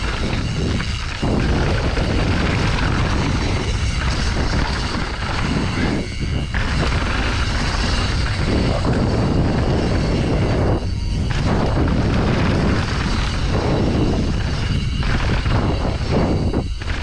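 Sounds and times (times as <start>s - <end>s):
bike rattling: 0.0s - 17.0s
wind rush over microphone: 0.0s - 17.0s.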